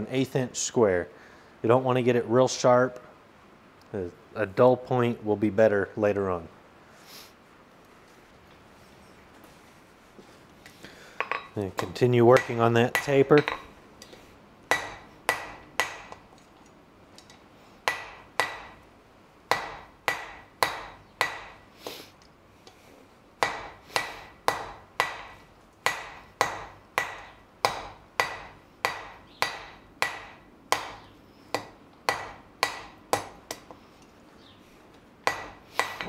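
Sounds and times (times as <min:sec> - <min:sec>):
hammer striking steel on anvil: 0:11.2 - 0:13.7, 0:14.7 - 0:16.2, 0:17.2 - 0:18.8, 0:19.5 - 0:21.6, 0:23.4 - 0:33.8, 0:35.2 - 0:36.0.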